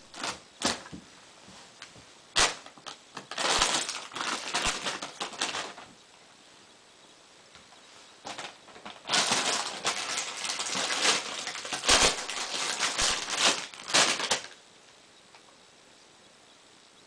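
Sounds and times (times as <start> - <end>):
plastic package crinkling: 0.0 - 0.9, 2.4 - 5.9, 8.2 - 14.6.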